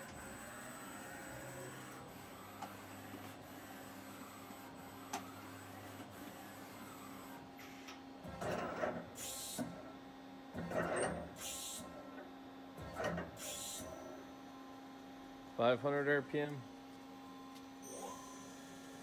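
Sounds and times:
tool turret clunking whir: 0:07.6 - 0:09.8, 0:10.6 - 0:14.0.

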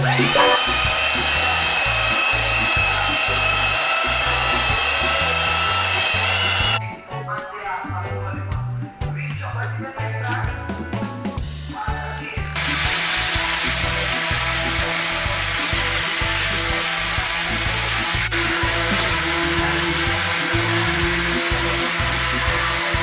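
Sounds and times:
electric sander running on wood: 0:00.0 - 0:06.8, 0:12.6 - 0:23.0
background music with bass beat: 0:06.6 - 0:23.0.

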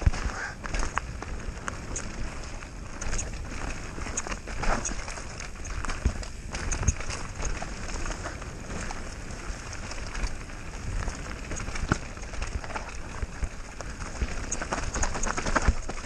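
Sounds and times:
bike knocking and rattling: 0:00.0 - 0:16.0
bike tyres rolling on dirt: 0:00.0 - 0:16.0.

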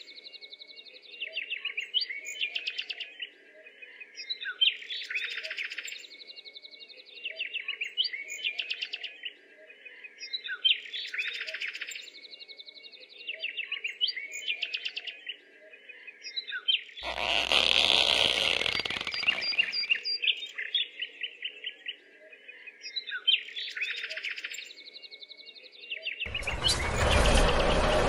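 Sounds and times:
small birds chirping: 0:09.9 - 0:26.9
loud noise with low hum: 0:26.3 - 0:28.0.

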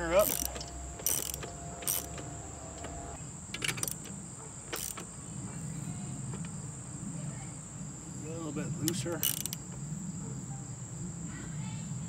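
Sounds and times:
socket wrench clicks: 0:00.2 - 0:03.0, 0:03.6 - 0:05.1, 0:08.9 - 0:09.6.

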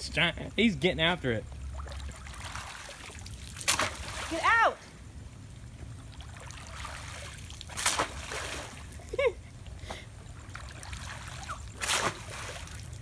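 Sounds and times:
water splashing when slapped: 0:01.8 - 0:04.5, 0:06.8 - 0:08.8, 0:11.4 - 0:12.9.

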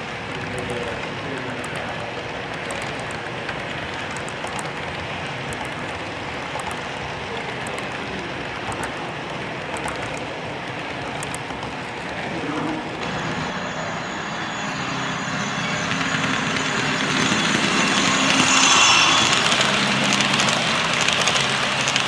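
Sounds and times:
model train rolling rumble: 0:16.4 - 0:22.0.

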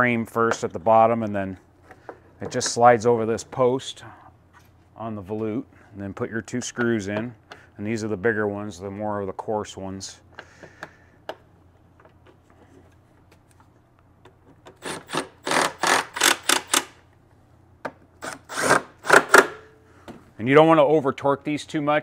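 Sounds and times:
cordless driver driving screws: 0:14.7 - 0:17.0.

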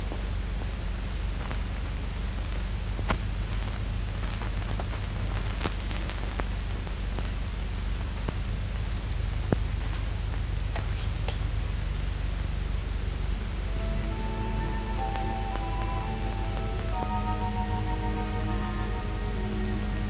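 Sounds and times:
film soundtrack hiss and hum: 0:00.0 - 0:20.0.

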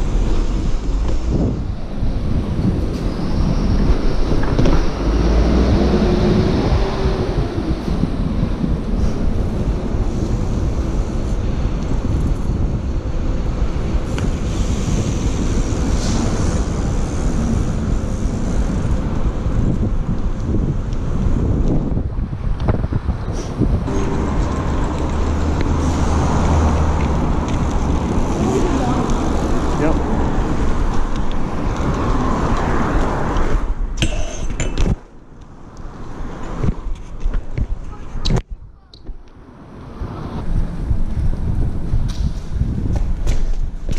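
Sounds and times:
wind rushing over microphone: 0:00.0 - 0:43.9
tyres rolling on paving slabs: 0:24.4 - 0:33.6.

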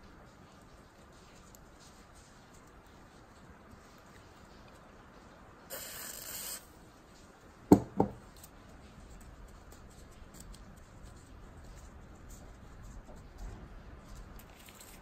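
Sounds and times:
aerosol can hiss: 0:05.7 - 0:06.7
sharp knocks: 0:07.7 - 0:08.2.

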